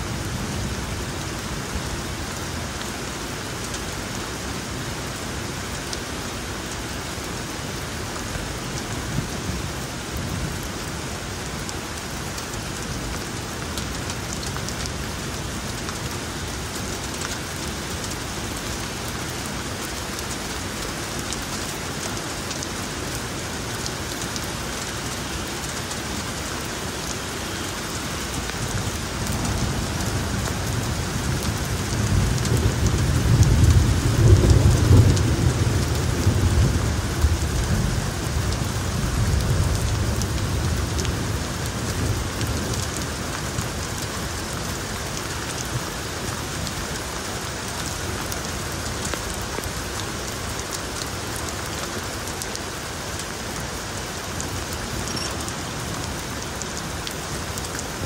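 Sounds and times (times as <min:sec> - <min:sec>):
rain falling on street: 0:00.0 - 0:58.0
thunder rumbling: 0:28.7 - 0:40.8.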